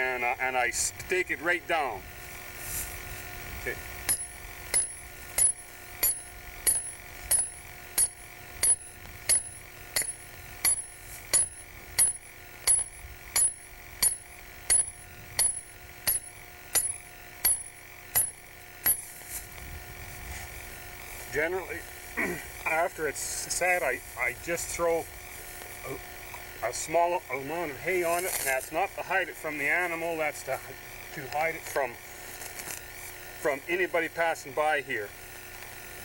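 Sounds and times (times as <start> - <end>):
hammer striking metal stake: 4.0 - 19.3.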